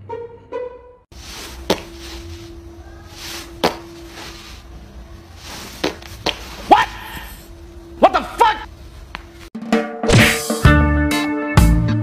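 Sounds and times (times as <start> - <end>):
steady low hum: 1.1 - 9.5.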